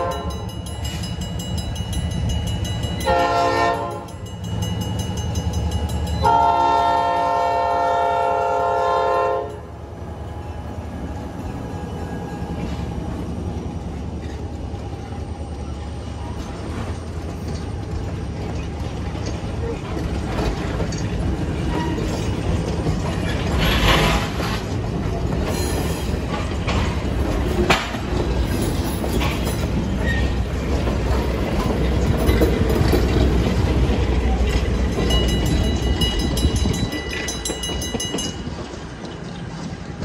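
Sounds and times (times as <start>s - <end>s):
train rumbling on rails: 0.0s - 40.0s.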